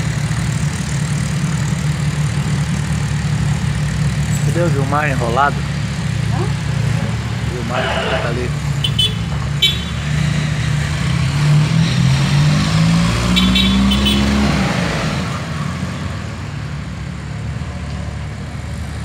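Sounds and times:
motorcycle engines accelerating: 0:00.0 - 0:19.0
horn beeps: 0:07.6 - 0:10.0, 0:13.3 - 0:14.3.

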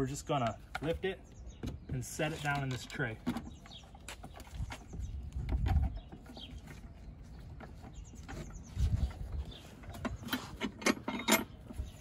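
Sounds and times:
handling clicks and knocks: 0:00.4 - 0:06.8, 0:09.8 - 0:11.9.

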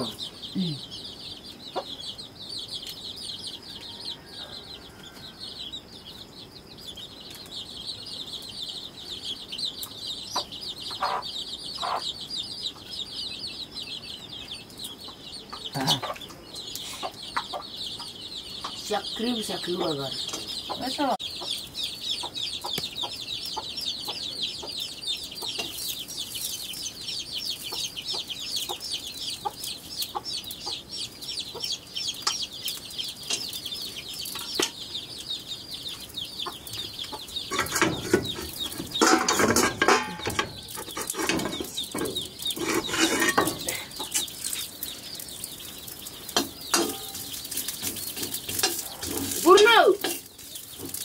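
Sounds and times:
chickens cheeping: 0:00.0 - 0:51.0
clattering and knocks: 0:37.5 - 0:43.8, 0:46.4 - 0:49.4.

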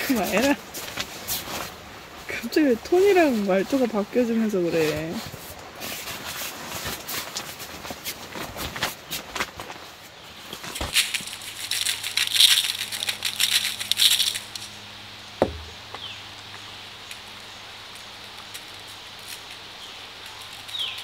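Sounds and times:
crackling rustle: 0:00.0 - 0:21.0
faint steady hum: 0:00.0 - 0:21.0
short knock with falling pitch: 0:15.4 - 0:15.8.

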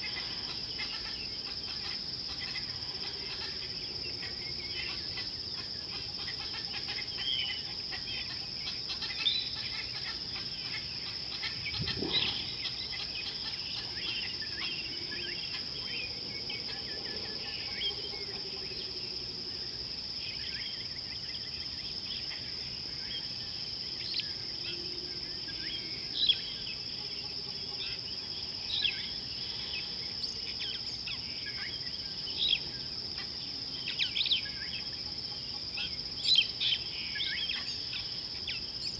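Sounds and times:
insects trilling: 0:00.0 - 0:38.9
bird chirps and calls: 0:06.5 - 0:16.0.

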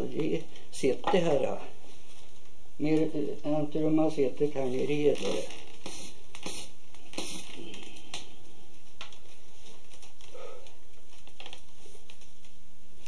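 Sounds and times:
low electrical hum: 0:00.0 - 0:13.0
recording hiss: 0:00.0 - 0:13.0
soft rustles: 0:01.8 - 0:02.6, 0:08.7 - 0:12.6.

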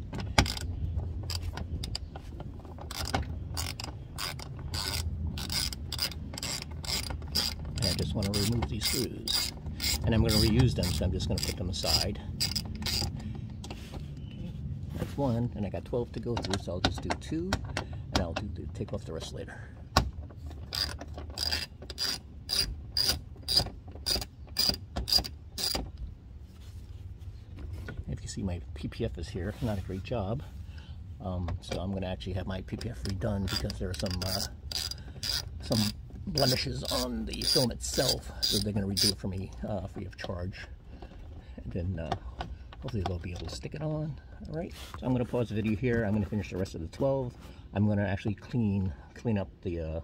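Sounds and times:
socket ratchet clicking: 0:00.1 - 0:02.2, 0:02.8 - 0:13.2, 0:20.6 - 0:25.9, 0:32.8 - 0:39.2.

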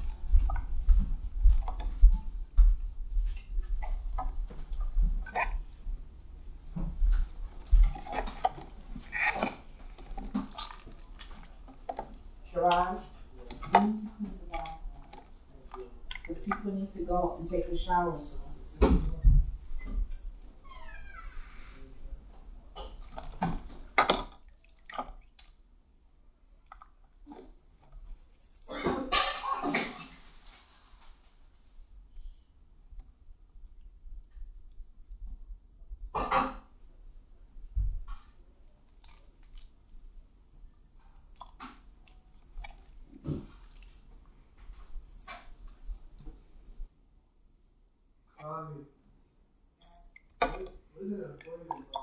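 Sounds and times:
wet slime squelches: 0:03.3 - 0:25.9, 0:26.5 - 0:29.2, 0:38.2 - 0:46.8, 0:49.8 - 0:52.0.

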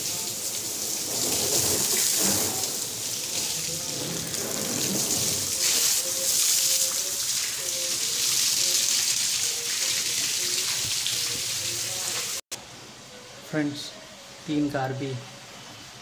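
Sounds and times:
water spray splashing on car: 0:00.0 - 0:12.4.

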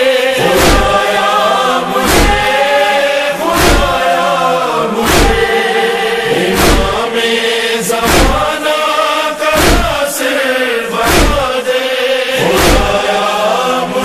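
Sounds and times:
chorus of voices chanting: 0:00.0 - 0:14.0
deep rhythmic thumps: 0:00.4 - 0:01.2, 0:02.0 - 0:02.7, 0:03.5 - 0:04.2, 0:05.0 - 0:05.6, 0:06.4 - 0:07.1, 0:08.0 - 0:08.6, 0:09.6 - 0:10.1, 0:11.0 - 0:11.5, 0:12.4 - 0:13.1.

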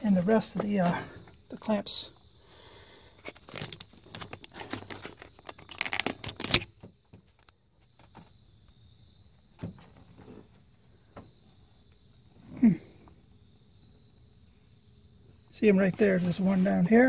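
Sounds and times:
rustling against microphone: 0:02.4 - 0:08.3
handling clicks and knocks: 0:03.2 - 0:08.4.

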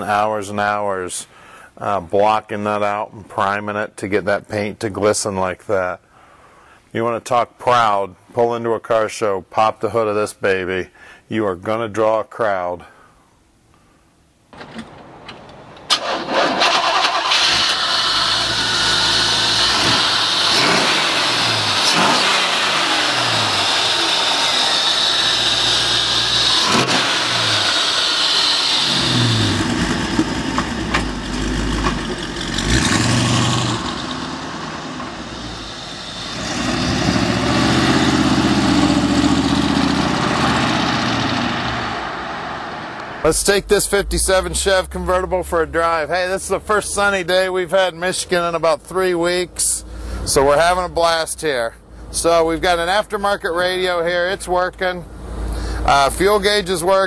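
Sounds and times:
car pulling away: 0:14.9 - 0:47.2
car engine starting and revving: 0:15.9 - 0:47.2.

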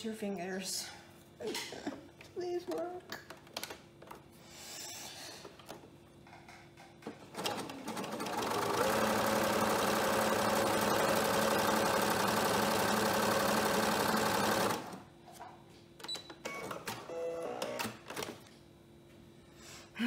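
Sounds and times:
sewing machine stitching: 0:07.3 - 0:15.0.

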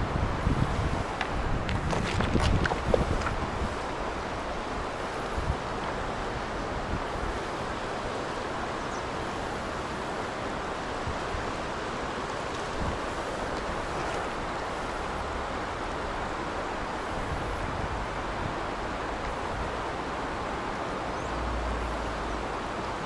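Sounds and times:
wind buffeting microphone: 0:00.0 - 0:08.0, 0:10.5 - 0:19.9
river rushing over rocks: 0:00.0 - 0:23.0.

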